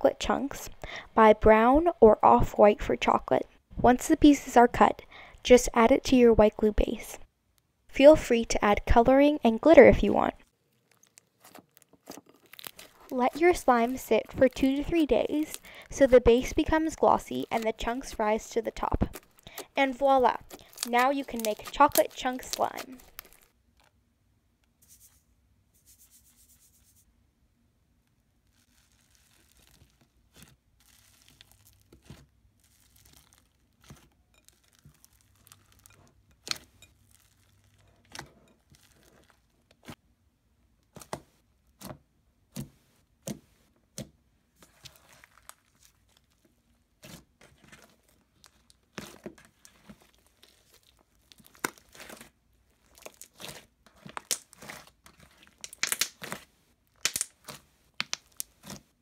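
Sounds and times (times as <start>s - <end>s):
sticky slime popping and crackling: 10.8s - 23.5s, 28.5s - 40.0s, 40.9s - 59.0s.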